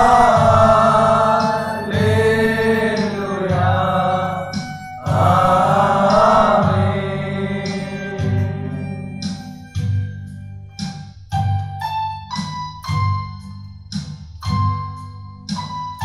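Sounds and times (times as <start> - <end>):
men singing together: 0.0 - 9.2
electronic keyboard: 0.0 - 16.0.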